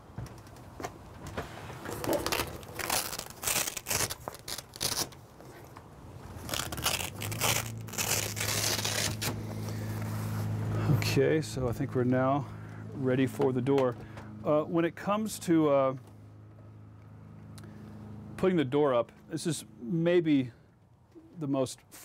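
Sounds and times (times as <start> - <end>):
fabric rustling: 1.4 - 10.6
velcro ripping apart: 1.9 - 5.2, 6.3 - 10.5.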